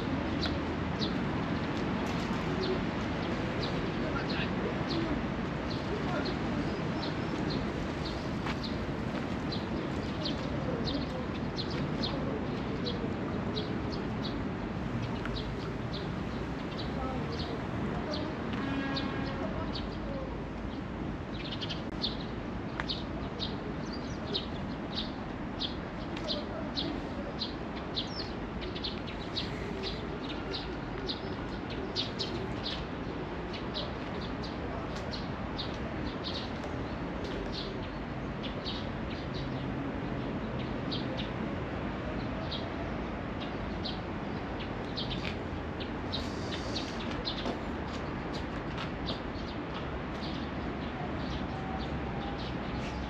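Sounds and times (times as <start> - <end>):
small birds chirping: 21.3 - 39.7.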